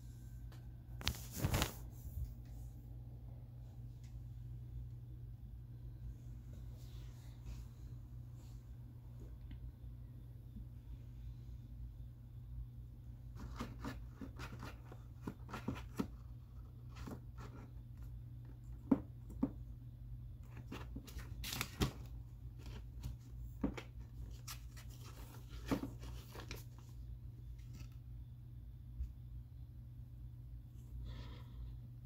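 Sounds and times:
papers rustling and crinkling: 1.0s - 2.0s, 20.5s - 27.0s.

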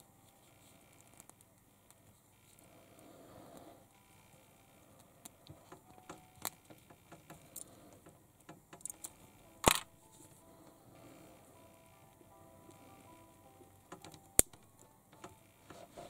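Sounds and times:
plastic toy parts clicking: 5.4s - 9.9s, 13.9s - 15.4s.

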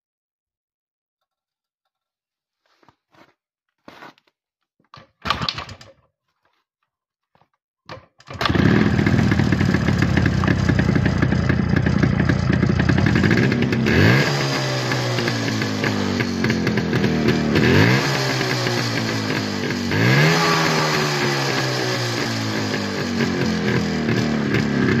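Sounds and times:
motorcycle engine running: 8.4s - 25.0s.

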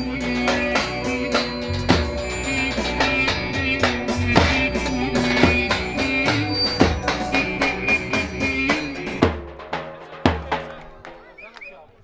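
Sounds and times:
reedy wind instrument melody: 0.0s - 11.3s
bass drum strikes: 1.5s - 10.7s.

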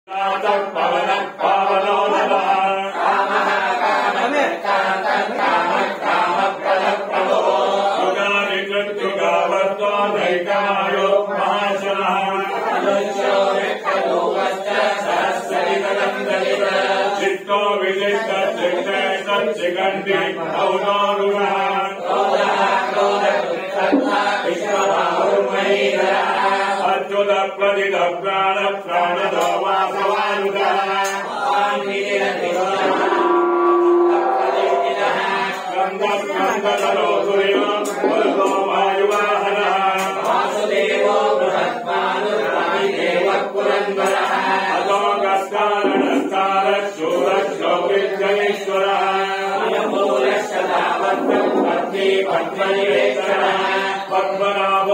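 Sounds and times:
men chanting in unison: 0.1s - 54.9s.

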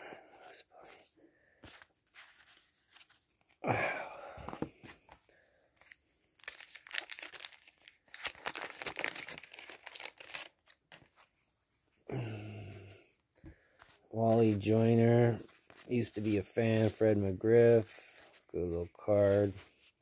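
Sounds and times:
wax paper crinkling and tearing: 5.8s - 11.2s.

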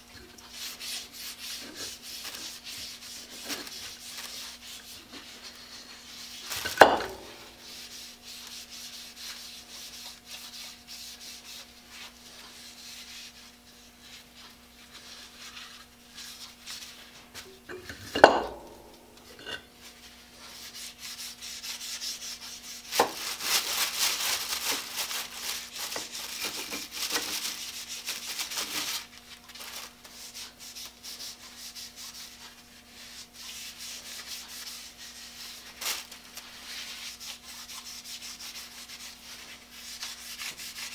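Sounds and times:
hands rubbing wooden handles: 0.4s - 17.6s, 19.8s - 29.0s, 29.9s - 40.9s
sharp knocks on a bench: 6.8s - 7.2s.

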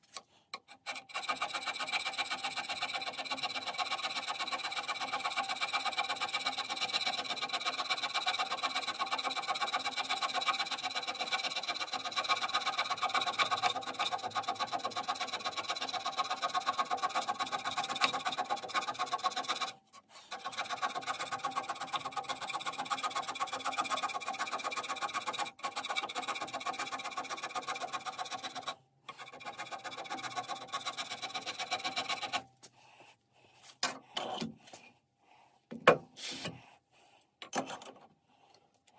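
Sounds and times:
hand scraper scraping metal: 0.0s - 32.7s, 36.1s - 36.8s.

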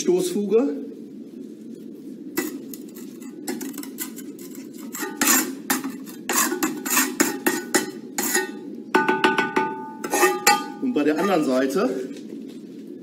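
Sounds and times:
trowel scraping and clinking bricks: 2.4s - 8.6s, 10.0s - 10.8s.

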